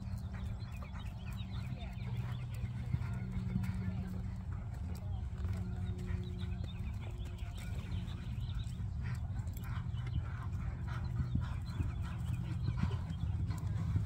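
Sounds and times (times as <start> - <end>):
hoofbeats on sand: 0.0 - 14.0
low hum: 0.0 - 14.0
horse breathing: 6.0 - 14.0.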